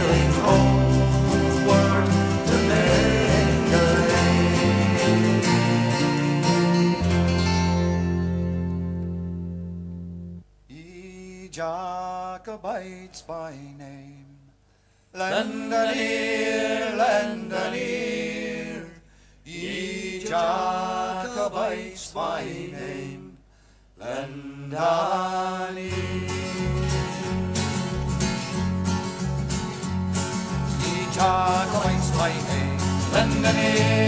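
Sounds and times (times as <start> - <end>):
man singing folk song: 0.0 - 7.7, 10.7 - 14.5, 24.0 - 28.7, 30.3 - 34.0
bass line: 0.0 - 10.4, 26.0 - 34.0
guitars strumming: 0.0 - 10.4, 25.9 - 34.0.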